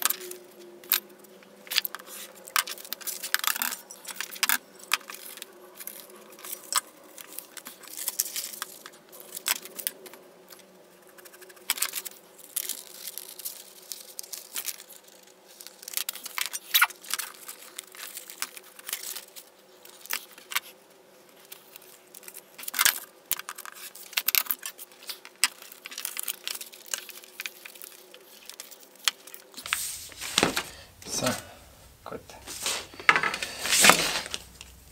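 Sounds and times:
paper rustling: 0:23.5 - 0:34.9
rotary cutter cutting paper: 0:32.5 - 0:34.8.

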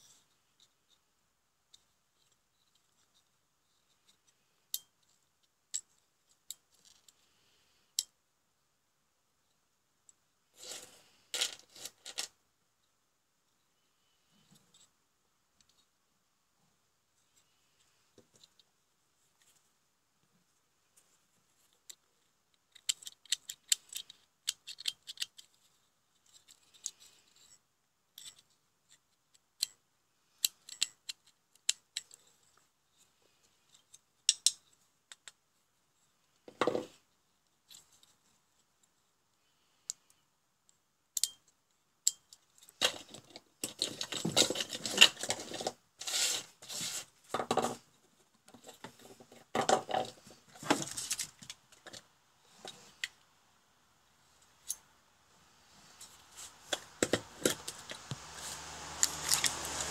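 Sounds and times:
parts scraping and clattering on bench: 0:42.8 - 0:47.9, 0:55.9 - 0:59.9.

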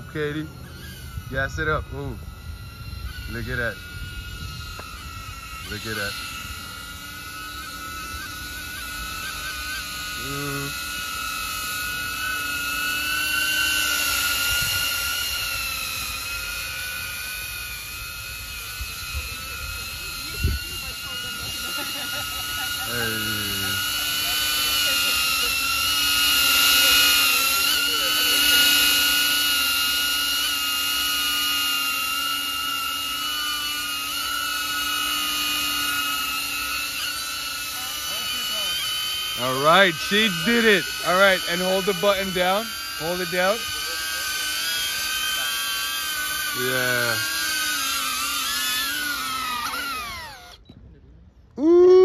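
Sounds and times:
drone propellers whining: 0:00.0 - 0:52.0.

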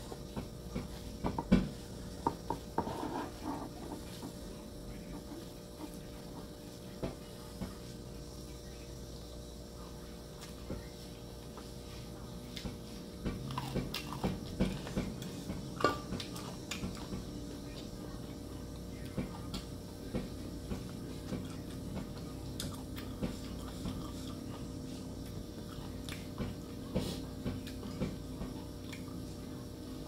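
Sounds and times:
faint steady hum: 0:00.0 - 0:30.0
person chewing and lip smacks: 0:25.7 - 0:26.3, 0:28.8 - 0:29.2.

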